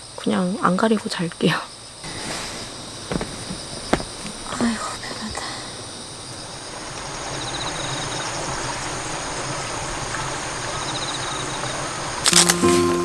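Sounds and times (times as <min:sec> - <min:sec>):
rapid insect chirps: 0:00.0 - 0:12.7
outdoor ambient hiss: 0:00.0 - 0:13.0
loud fabric rustle: 0:02.1 - 0:04.5
background music: 0:12.3 - 0:13.0.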